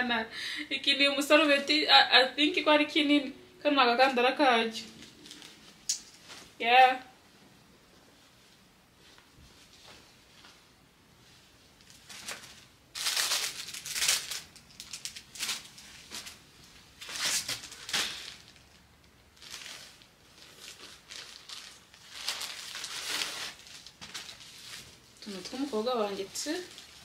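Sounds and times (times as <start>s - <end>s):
plastic packaging crinkling: 11.8s - 27.0s.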